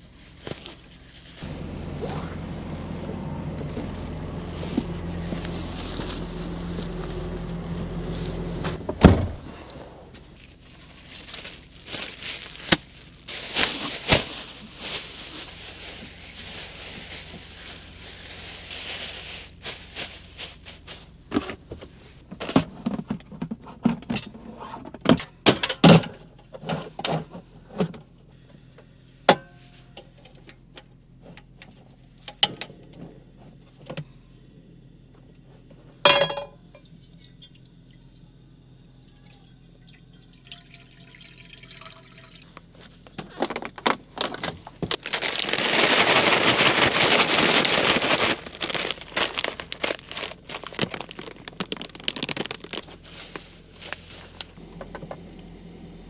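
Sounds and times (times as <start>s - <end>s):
plastic bags rustling: 0.0s - 8.8s, 10.1s - 22.2s, 42.7s - 54.6s
steady low hum: 0.0s - 25.0s, 27.2s - 45.2s, 45.8s - 56.0s.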